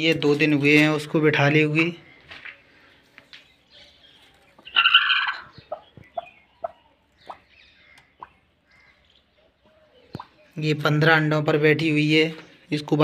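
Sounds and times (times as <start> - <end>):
hen clucking: 4.5 - 8.6
hen squawking: 4.7 - 9.0.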